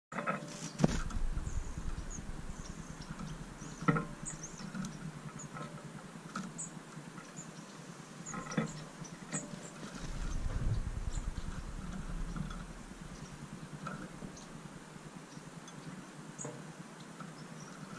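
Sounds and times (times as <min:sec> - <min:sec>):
high bird chirps: 0:01.2 - 0:05.5, 0:10.0 - 0:14.7.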